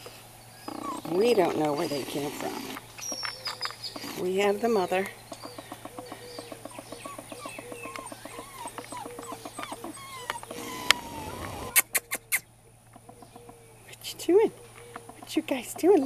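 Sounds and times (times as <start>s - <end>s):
patter of small ticks: 0.0s - 12.2s
rustle: 0.0s - 16.0s
puppies whining and whimpering: 0.5s - 4.3s, 5.4s - 12.4s.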